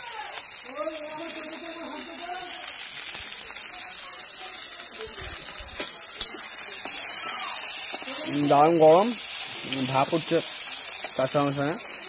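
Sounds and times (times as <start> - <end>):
faint voice: 0.0 - 8.4
oil sizzling in a frying pan: 0.0 - 12.0.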